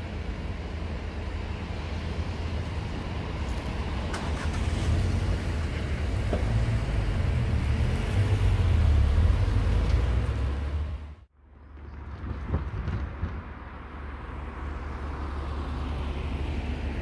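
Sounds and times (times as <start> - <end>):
cars pulling away: 0.0 - 11.2.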